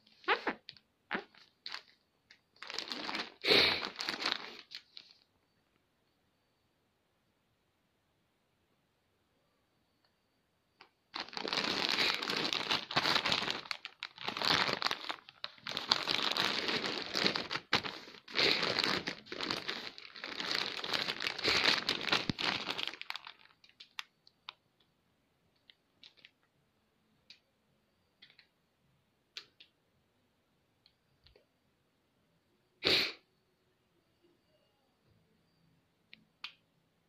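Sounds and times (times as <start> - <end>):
plastic wrapping crinkling: 0.2 - 5.2, 11.1 - 24.6.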